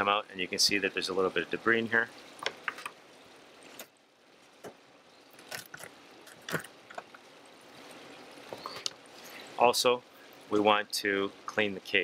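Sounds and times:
faint hiss: 0.0 - 12.0.

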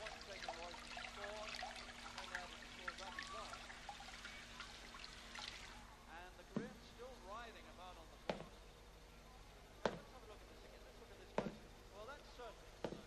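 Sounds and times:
tap water running into pot: 0.0 - 5.8.

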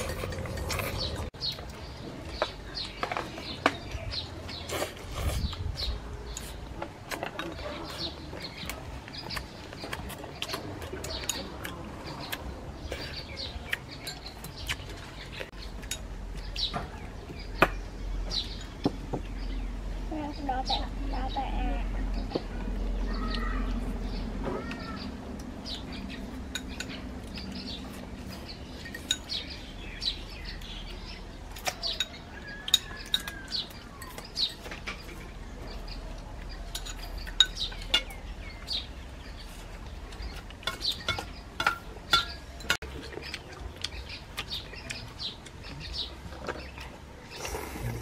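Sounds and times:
utensils clinking on bowls: 0.0 - 1.2, 28.8 - 29.6, 31.6 - 35.3, 36.6 - 38.2, 40.2 - 43.2
birds chirping: 0.0 - 48.0.

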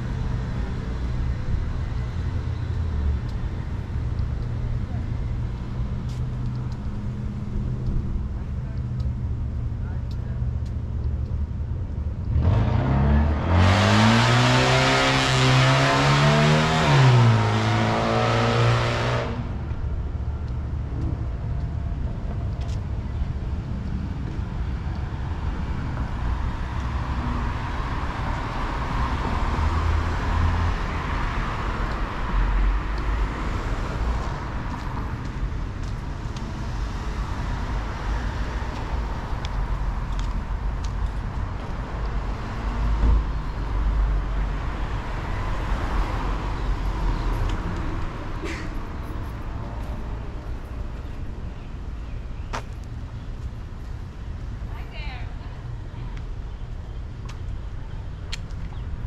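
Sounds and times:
low traffic rumble: 0.0 - 59.0
car accelerating past: 12.3 - 19.5.

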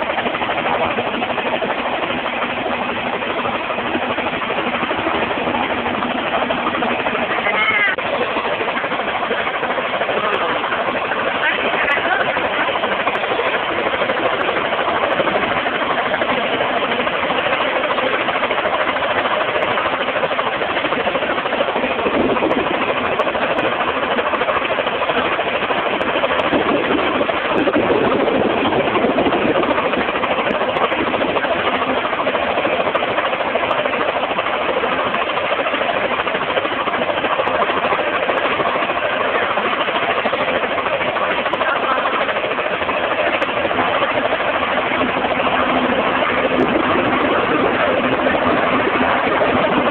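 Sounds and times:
helicopter engine and rotor: 0.0 - 49.9.

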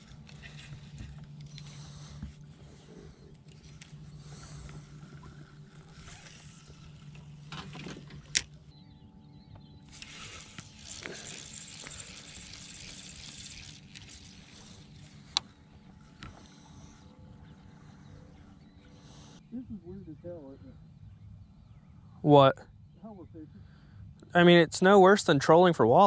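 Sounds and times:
electric trolling motor hum: 0.0 - 19.4.

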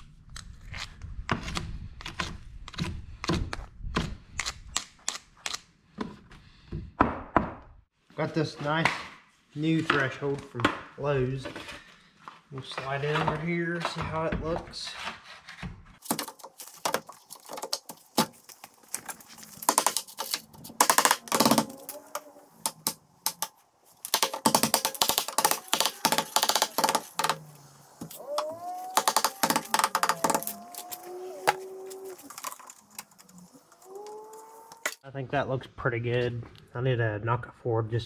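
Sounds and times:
sliding drawn-out tones: 19.2 - 35.0.

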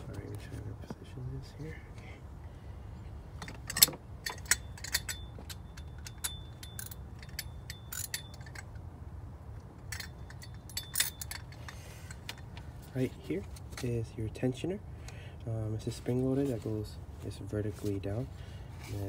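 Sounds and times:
metal tools clinking: 3.4 - 8.9, 9.7 - 14.0.

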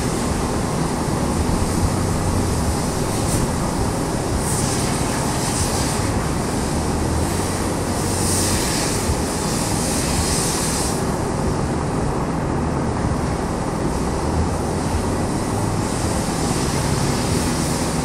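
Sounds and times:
hiss of rope being worked: 0.0 - 11.3
drum fan roaring: 0.0 - 18.0.

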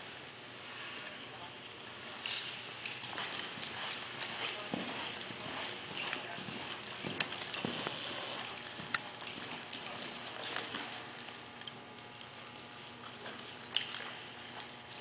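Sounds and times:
horse hoofbeats on sand: 2.8 - 11.1.

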